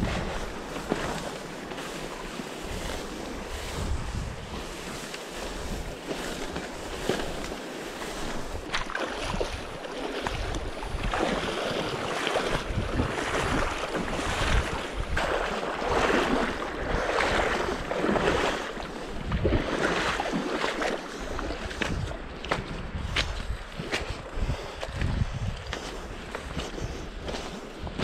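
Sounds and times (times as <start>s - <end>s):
river current rushing: 0.0s - 21.6s
boots splashing through water: 0.0s - 28.0s
wind on microphone: 0.0s - 28.0s.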